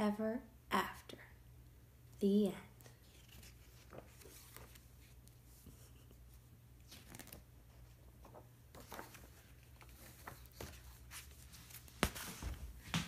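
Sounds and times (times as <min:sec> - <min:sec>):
paper pages rustling: 0:03.0 - 0:13.0.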